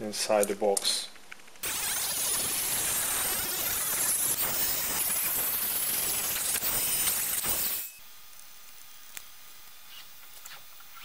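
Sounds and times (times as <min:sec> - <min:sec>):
rotary tool grinding: 0:01.6 - 0:08.0.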